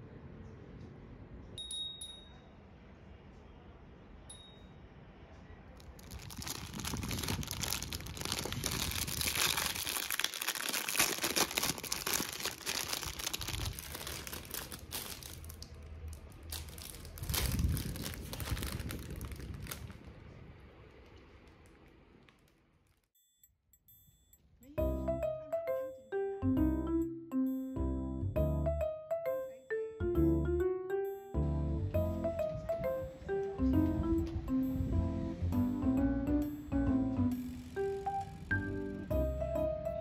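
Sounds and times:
wind chime ring: 1.6s - 2.5s
plastic bag crinkling: 5.8s - 23.1s.

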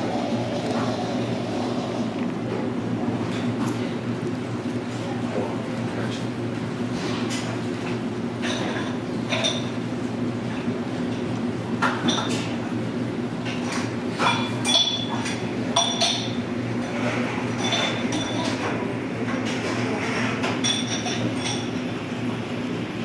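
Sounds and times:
low background hum: 0.0s - 23.0s
spoon and dishes clinking glass: 14.2s - 16.4s, 20.6s - 21.7s.

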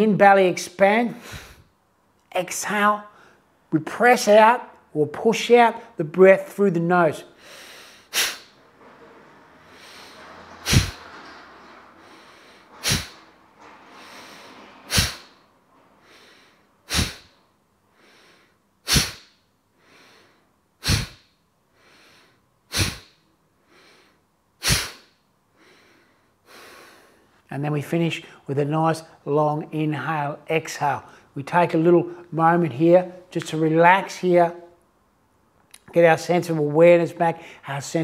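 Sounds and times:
man breathing forcefully through nose: 1.2s - 1.7s, 7.4s - 8.6s, 9.6s - 11.2s, 11.8s - 27.4s.

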